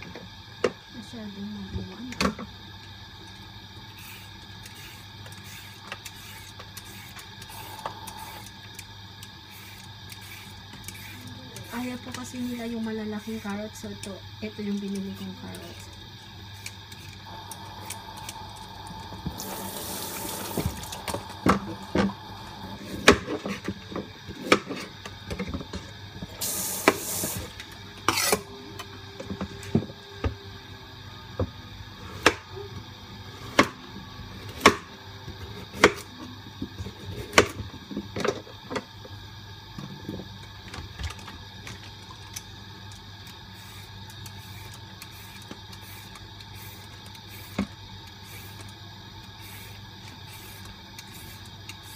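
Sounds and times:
running water: 17.8 - 22.0.

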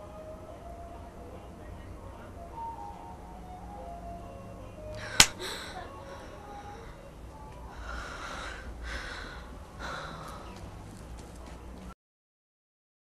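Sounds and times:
woman crying with heavy breaths: 5.0 - 7.1, 7.7 - 10.6
sharp click: 5.2 - 5.4.

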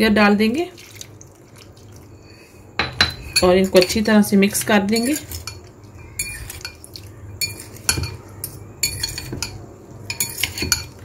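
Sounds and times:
fork clinking against glass bowl: 4.9 - 6.8, 7.4 - 11.0.

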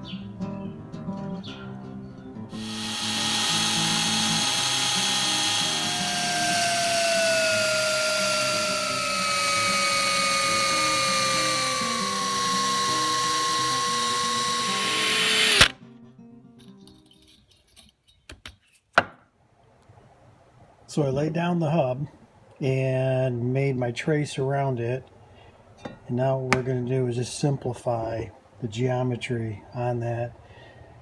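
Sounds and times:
electric drill whine: 2.6 - 15.8.

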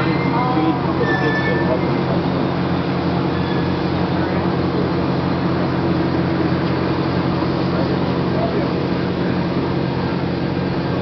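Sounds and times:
constant low hum: 0.0 - 11.0.

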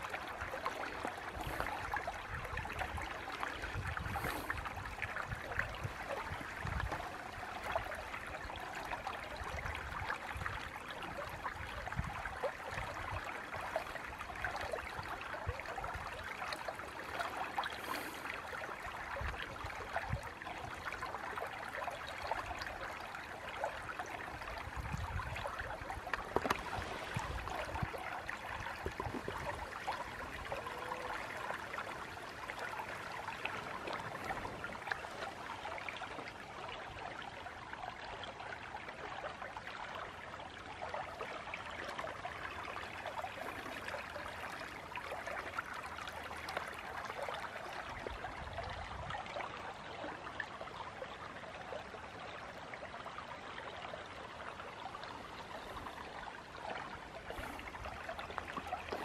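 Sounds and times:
creek water babbling over rocks: 0.0 - 59.0.

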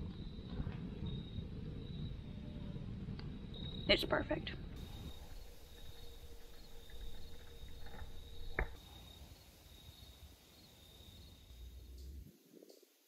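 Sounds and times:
campfire wood popping: 0.0 - 9.2
crickets trilling: 0.0 - 12.9.

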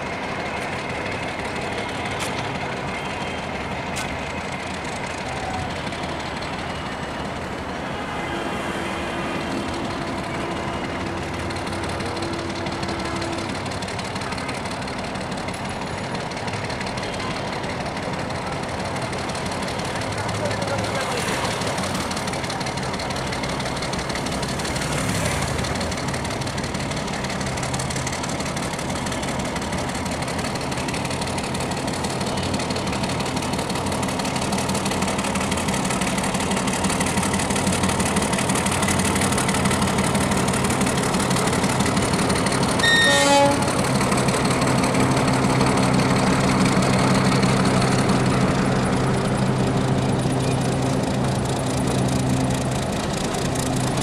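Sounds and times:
diesel locomotive engine drone: 0.0 - 54.0
train horn toot: 42.8 - 43.9.

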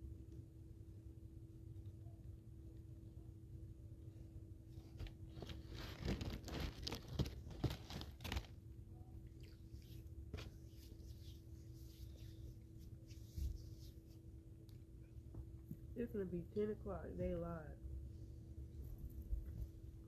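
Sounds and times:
paper wrapper crinkling and tearing: 4.8 - 8.6.

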